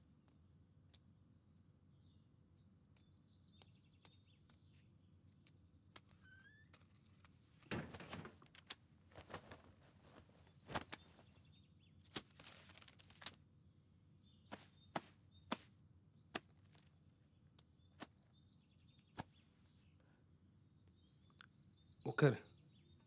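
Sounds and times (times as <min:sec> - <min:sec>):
cloth rustling: 0:06.0 - 0:11.4, 0:12.0 - 0:13.4, 0:14.5 - 0:15.7.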